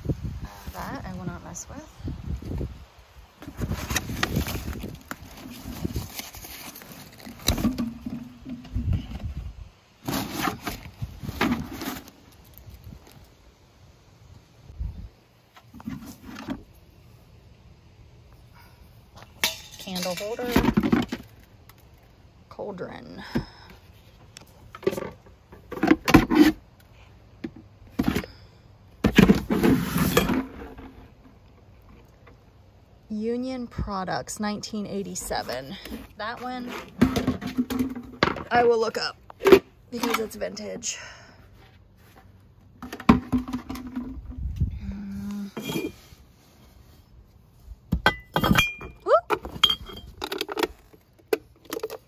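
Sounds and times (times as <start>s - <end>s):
scraping rustle of items shifted: 3.4s - 8.0s, 10.0s - 13.3s
plastic items knocking and clattering: 36.8s - 38.6s, 42.8s - 44.4s.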